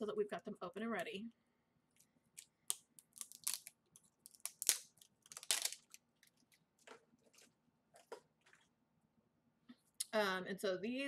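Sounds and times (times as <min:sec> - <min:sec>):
plastic packaging crinkling and tearing: 0:02.4 - 0:07.5.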